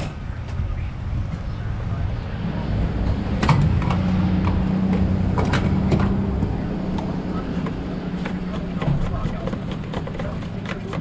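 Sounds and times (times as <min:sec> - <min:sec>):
fuel pump humming: 0:03.0 - 0:11.0.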